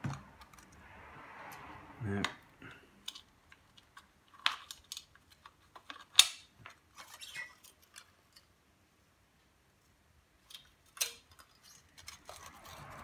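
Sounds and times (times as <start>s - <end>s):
plastic and metal parts clicking: 3.0s - 8.5s, 10.4s - 13.0s.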